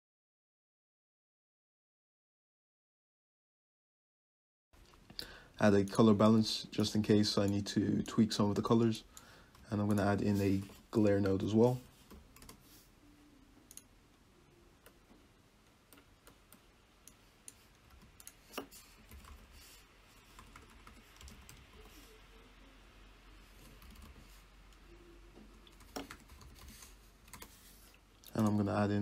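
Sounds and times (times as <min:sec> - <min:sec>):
keyboard typing: 0:09.2 - 0:12.7, 0:15.9 - 0:22.4, 0:23.5 - 0:28.6.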